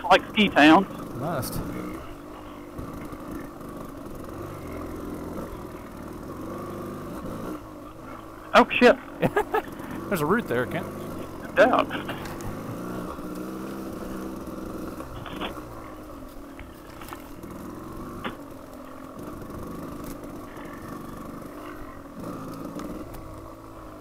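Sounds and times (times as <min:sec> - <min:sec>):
motorcycle engine at low revs: 0:00.0 - 0:24.0.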